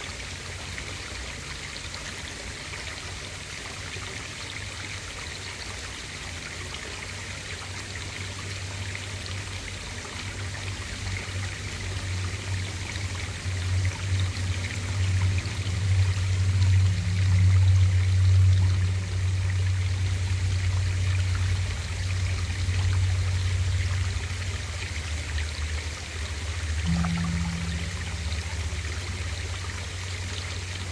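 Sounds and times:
underwater water trickling: 0:00.0 - 0:30.9
low steady hum: 0:06.5 - 0:30.9.

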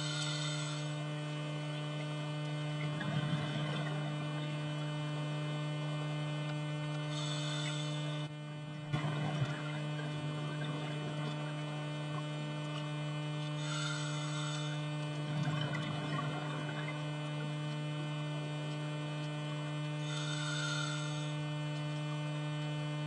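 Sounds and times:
camera electrical hum: 0:00.0 - 0:23.0
exhaled air bubbles: 0:02.6 - 0:05.0, 0:06.9 - 0:13.1, 0:13.7 - 0:17.7.

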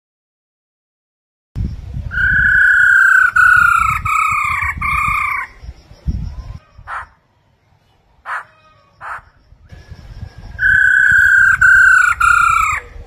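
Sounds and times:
bird whistling long clear notes: 0:02.1 - 0:05.6, 0:09.6 - 0:13.0.

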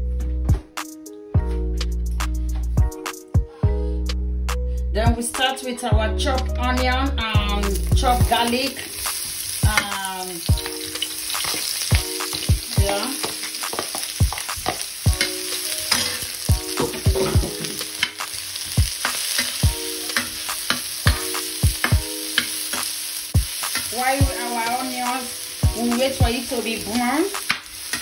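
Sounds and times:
onion sizzling in a frying pan: 0:07.3 - 0:28.0
metal spatula scraping a pan: 0:10.6 - 0:21.2.

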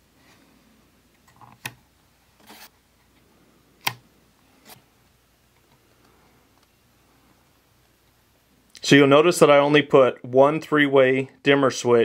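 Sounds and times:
switch clicks: 0:03.8 - 0:04.0.

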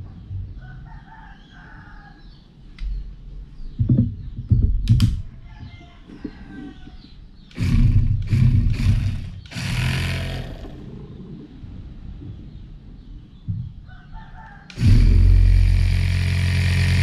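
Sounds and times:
small electric motor spinning: 0:07.5 - 0:10.8, 0:14.7 - 0:17.0.

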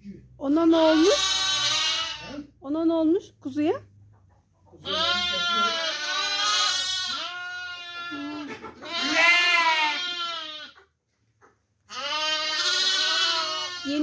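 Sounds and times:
sheep bleating: 0:00.7 - 0:02.5, 0:04.8 - 0:10.8, 0:11.9 - 0:14.0.

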